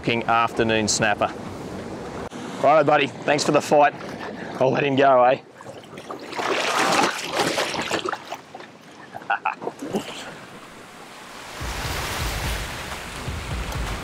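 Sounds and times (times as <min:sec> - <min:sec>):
water splashing and sloshing: 0:01.3 - 0:14.0
music with pulsing beat: 0:13.2 - 0:14.0.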